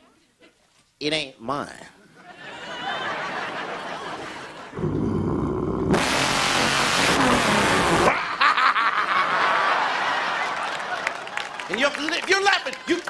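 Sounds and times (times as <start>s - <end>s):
man imitating truck engine: 4.8s - 8.4s.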